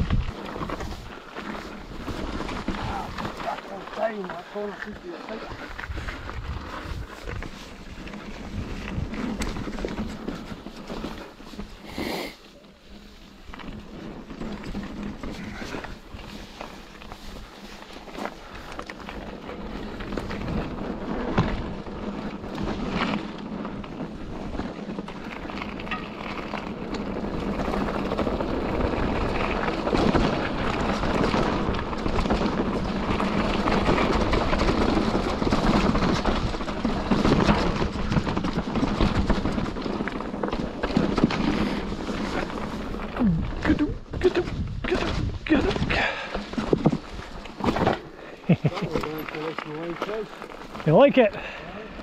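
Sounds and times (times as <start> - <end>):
wind on microphone: 0.0 - 1.0
bike rattling over rocks: 0.0 - 11.9, 12.5 - 52.0
tyres crunching over gravel: 0.0 - 43.7, 45.2 - 52.0.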